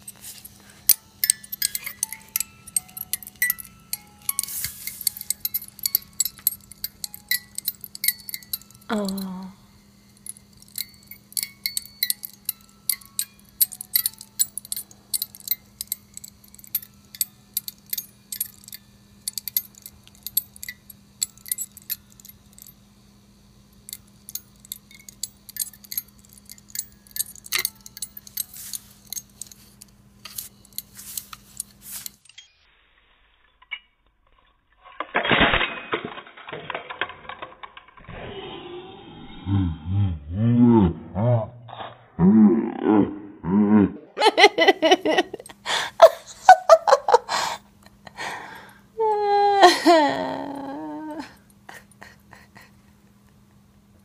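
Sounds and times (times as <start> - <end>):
steady low hum: 0.0 - 33.0, 38.0 - 54.0
music box plucking a tune: 0.8 - 22.7.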